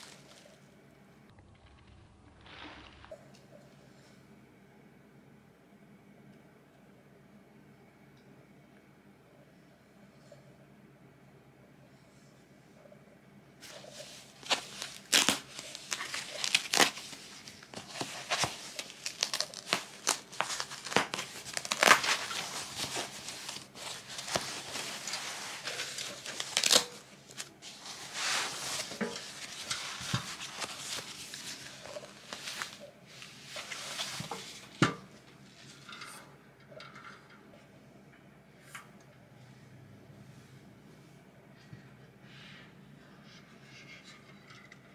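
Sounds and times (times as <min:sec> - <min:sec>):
wrapping paper crinkling: 0:00.0 - 0:00.6, 0:13.6 - 0:34.8.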